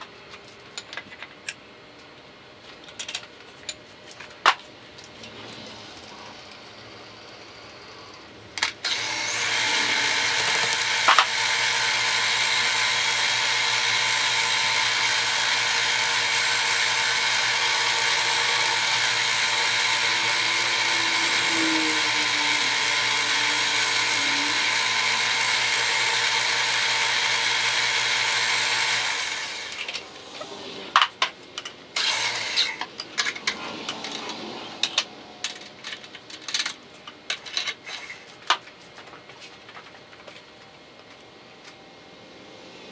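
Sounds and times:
arc welding hiss and buzz: 0:08.9 - 0:30.2.

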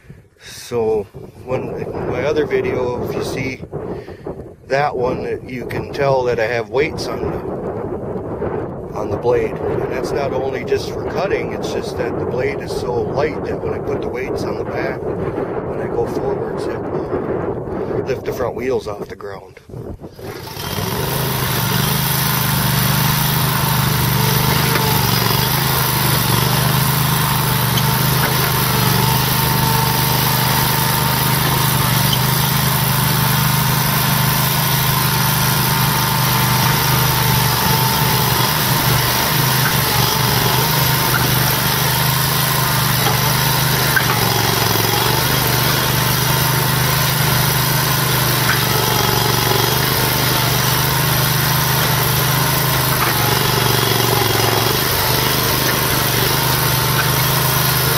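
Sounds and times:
garden tractor engine running: 0:20.0 - 0:57.9.

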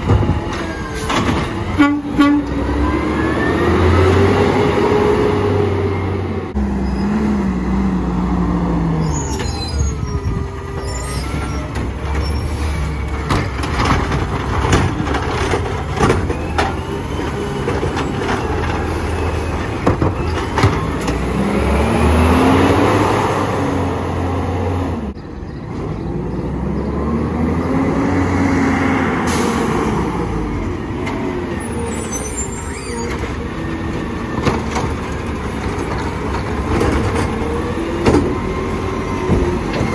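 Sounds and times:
garbage truck engine revving: 0:00.0 - 0:25.2
carts and trash banging into hopper: 0:13.2 - 0:21.2.

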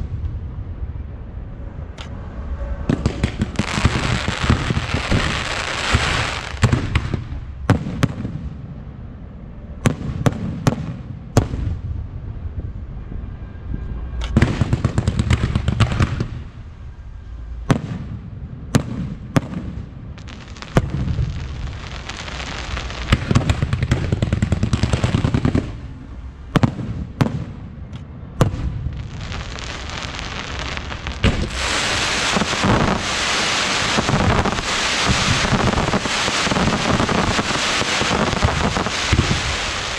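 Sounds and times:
firework crackling: 0:02.9 - 0:08.2, 0:14.4 - 0:16.6, 0:20.2 - 0:26.0, 0:28.5 - 0:39.9
firework bangs: 0:02.9 - 0:08.5, 0:14.4 - 0:16.5, 0:17.6 - 0:27.6, 0:28.4 - 0:39.9.

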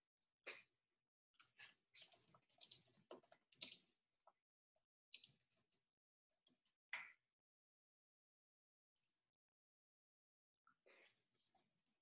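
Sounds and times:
faint clicks and taps: 0:01.4 - 0:04.4.

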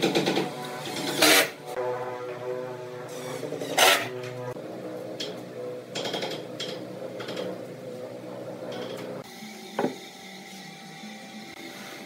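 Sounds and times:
wood knocking on workbench: 0:09.8 - 0:10.0.

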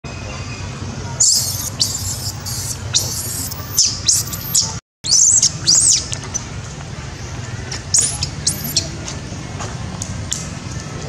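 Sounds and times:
baby monkey screaming: 0:01.2 - 0:06.1, 0:07.9 - 0:08.8.

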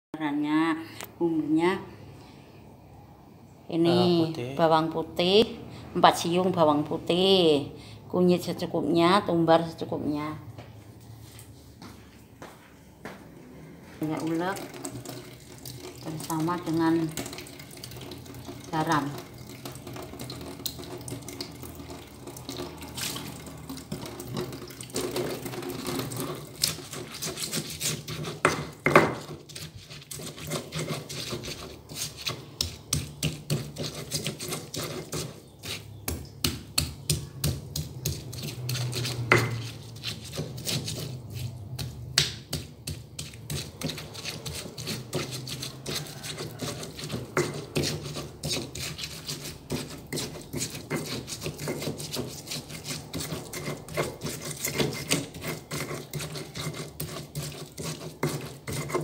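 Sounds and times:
stone pestle grinding in mortar: 0:21.8 - 0:59.0.

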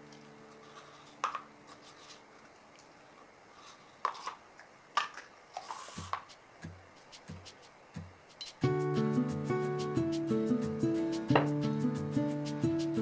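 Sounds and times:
background music: 0:06.6 - 0:13.0.

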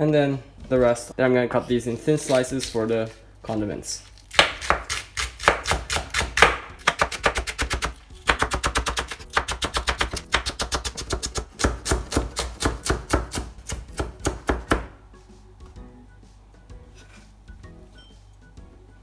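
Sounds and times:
knife chopping on cutting board: 0:04.3 - 0:15.0.

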